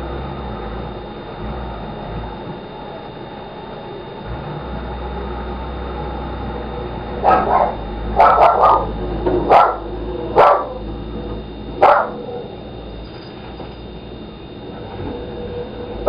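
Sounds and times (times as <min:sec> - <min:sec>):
dog barking: 0:07.2 - 0:10.8, 0:11.8 - 0:12.5.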